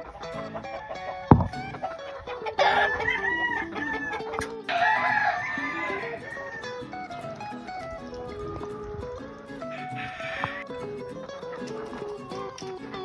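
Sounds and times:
background music: 0:00.0 - 0:13.0
rooster crowing: 0:00.5 - 0:06.8, 0:09.7 - 0:10.7
dull thump: 0:01.3 - 0:01.8.

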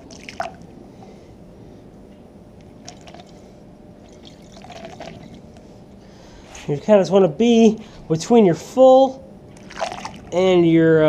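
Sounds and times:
water trickling through funnel: 0:00.0 - 0:00.7, 0:02.8 - 0:03.4, 0:04.0 - 0:05.6, 0:09.5 - 0:10.4.

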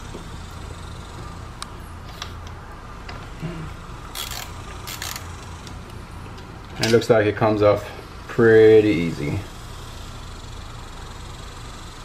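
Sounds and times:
socket ratchet ratcheting: 0:04.1 - 0:05.7.

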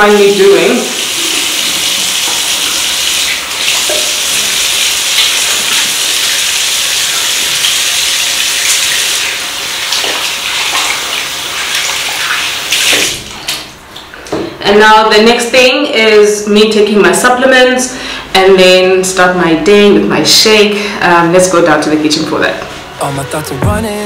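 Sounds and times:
hands washing under water: 0:00.1 - 0:14.1
tap running into sink: 0:01.2 - 0:06.6.

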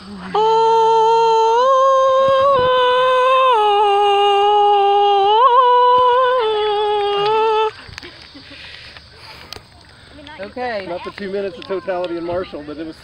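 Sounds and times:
person singing a long note: 0:00.0 - 0:07.8.

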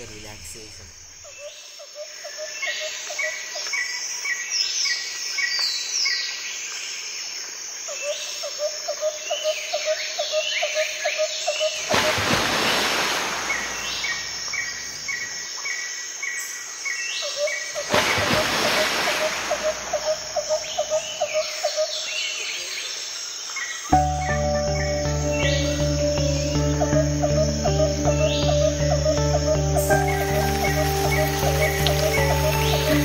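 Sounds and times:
insect chirps: 0:00.0 - 0:33.0
birds chirping and calling: 0:19.3 - 0:22.4, 0:23.9 - 0:33.0.

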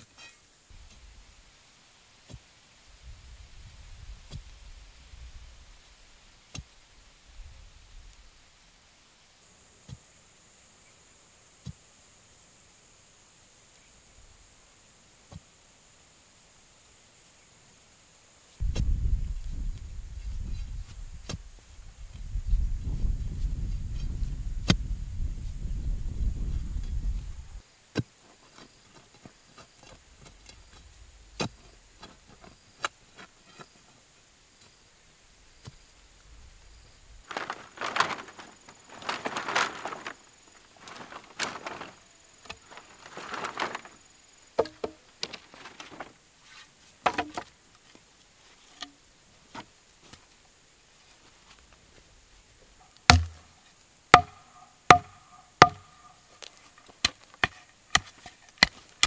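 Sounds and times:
wooden tamper pounding soil: 0:37.2 - 0:47.5, 0:52.7 - 0:59.0
bamboo poles clattering: 0:37.2 - 0:50.2, 0:52.7 - 0:59.0.

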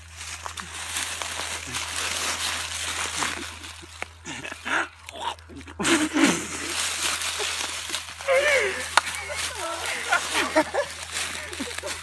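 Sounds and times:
rustling hiss: 0:00.0 - 0:12.0
person making grunting animal calls: 0:04.2 - 0:06.8, 0:08.2 - 0:12.0.

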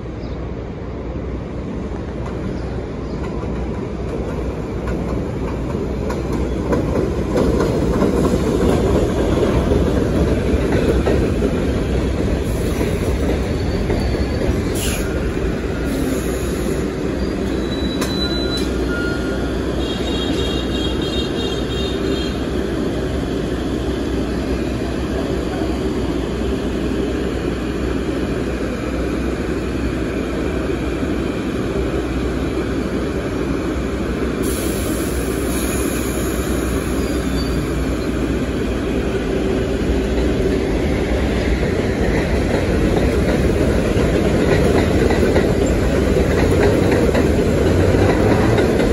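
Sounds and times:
subway train rumbling: 0:00.0 - 0:48.9
wheel and brake squeals: 0:12.7 - 0:16.3, 0:17.1 - 0:20.7, 0:37.0 - 0:38.2.

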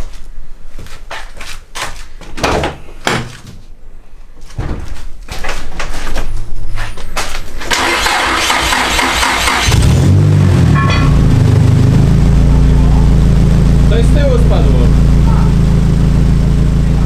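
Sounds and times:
car engine cranking and starting: 0:07.6 - 0:17.0.

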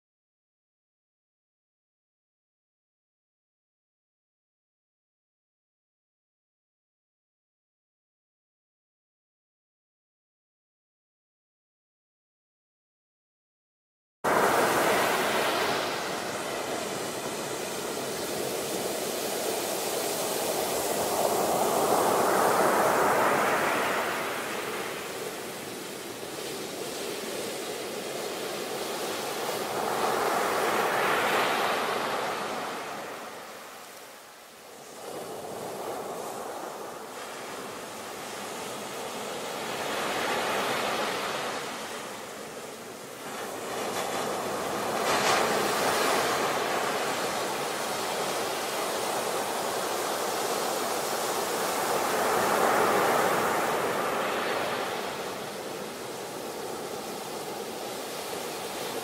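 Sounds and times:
ocean waves crashing on beach: 0:14.3 - 0:59.0.

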